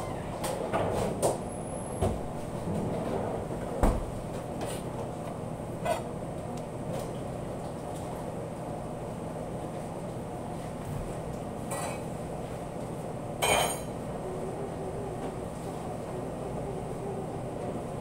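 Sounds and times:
dishes and utensils clinking: 11.7 - 12.1, 13.4 - 14.0
machine hum: 13.0 - 18.0.

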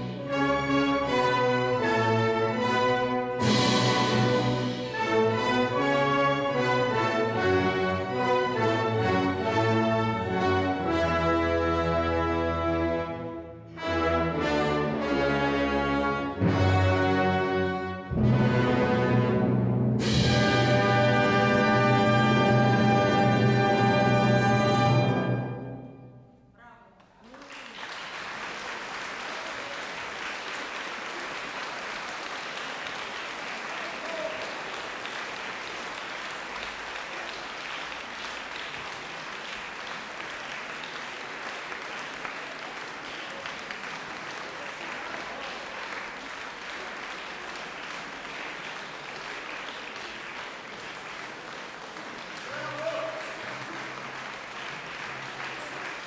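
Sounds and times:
audience applause: 27.2 - 56.0.

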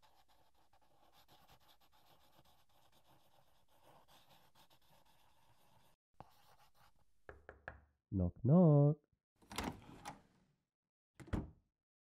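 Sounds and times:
pen scratching on paper: 0.0 - 7.0.

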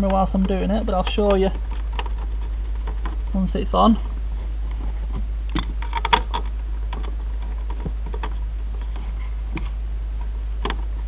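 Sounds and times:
low hum: 0.0 - 11.0
seat belt hardware clicks: 5.5 - 9.8.

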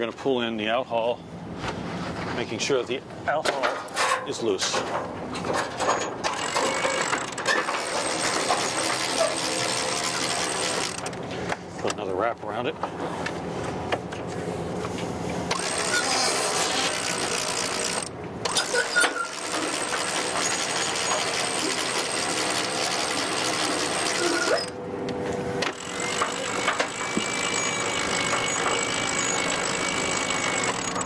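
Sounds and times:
winch pawls ratcheting: 3.9 - 11.2, 15.5 - 24.8, 25.6 - 31.0.

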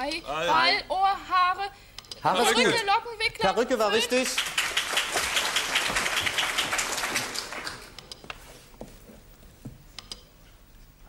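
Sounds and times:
audience applause: 4.1 - 8.0.

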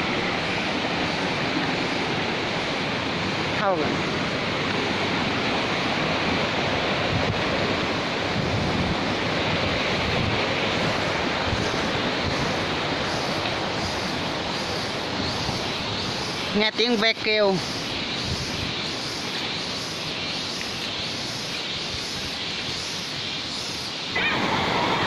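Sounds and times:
stream rushing over rocks: 0.0 - 25.0
faint cicada buzzing: 10.7 - 25.0.

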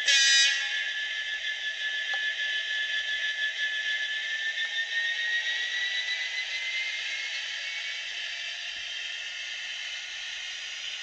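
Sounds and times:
model locomotive diesel engine sound: 0.0 - 11.0.

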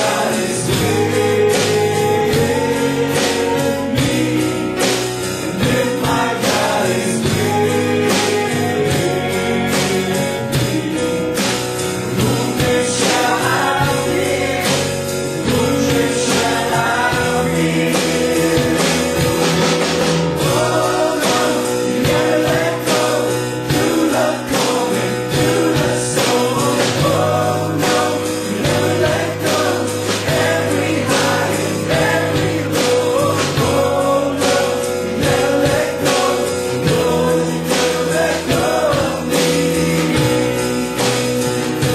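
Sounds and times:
drum kit beat: 0.0 - 41.9
gospel band playing: 0.0 - 41.9
person singing: 0.0 - 41.9.

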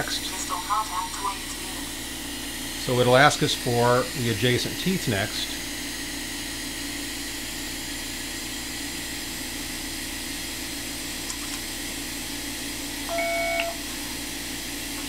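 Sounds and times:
scanner whirring hum: 0.0 - 15.0
short electronic beep: 13.1 - 13.8.

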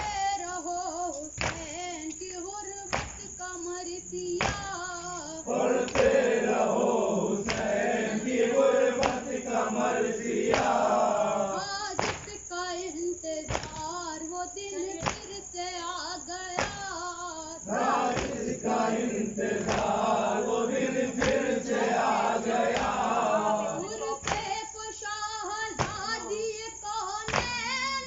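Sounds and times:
lead voice singing: 4.4 - 11.9, 17.6 - 24.7
group singing chorus: 4.4 - 12.3, 17.6 - 24.6, 25.7 - 26.4, 27.3 - 28.0
chest-beating in unison: 5.4 - 12.2, 17.7 - 24.4.

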